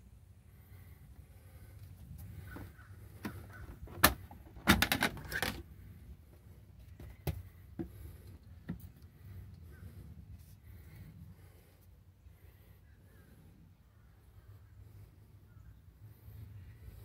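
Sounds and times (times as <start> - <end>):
plastic clicks and rattles: 3.2 - 5.6.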